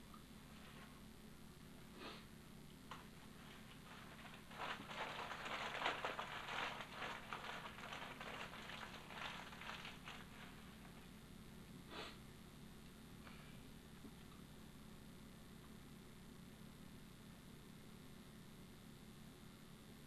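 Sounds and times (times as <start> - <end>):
dry rustling: 2.9 - 11.1.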